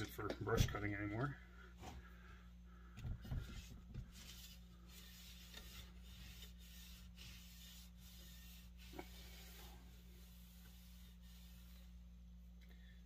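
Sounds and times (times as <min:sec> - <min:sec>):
cloth rubbing wooden handle: 0:03.2 - 0:12.2.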